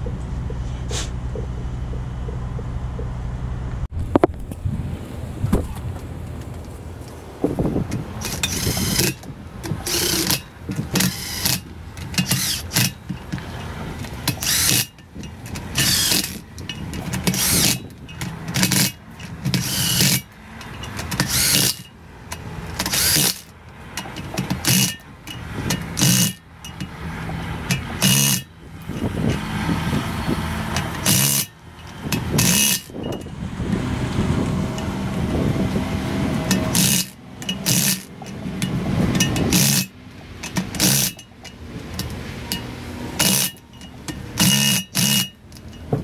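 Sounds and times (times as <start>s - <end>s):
impact wrench hammering: 8.2s - 29.4s, 30.7s - 33.3s, 36.4s - 46.0s.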